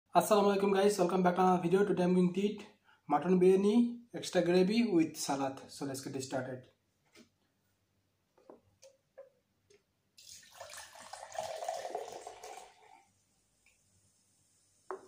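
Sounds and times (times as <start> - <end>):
drink pouring into glass: 10.2 - 13.1
faint fizzing hiss: 10.2 - 15.0.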